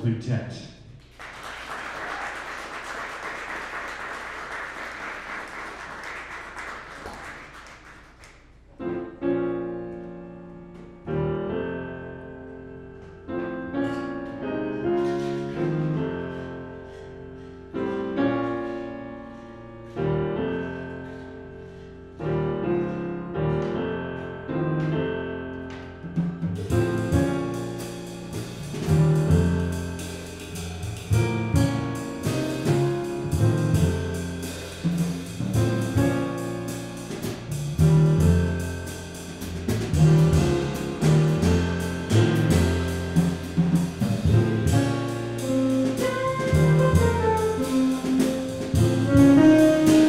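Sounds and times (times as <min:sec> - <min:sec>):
audience applause: 0:01.1 - 0:08.4
solo piano chords: 0:08.7 - 0:50.0.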